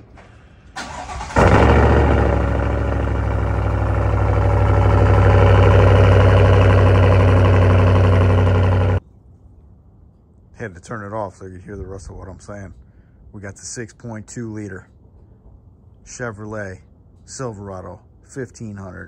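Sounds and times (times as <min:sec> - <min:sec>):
engine deep idle: 0:00.2 - 0:09.0
starter motor cranking: 0:00.8 - 0:09.0.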